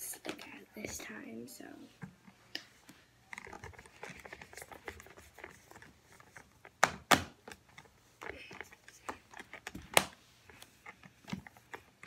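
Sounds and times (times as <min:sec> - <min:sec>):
cloth rubbing plastic doll: 0:01.7 - 0:12.0.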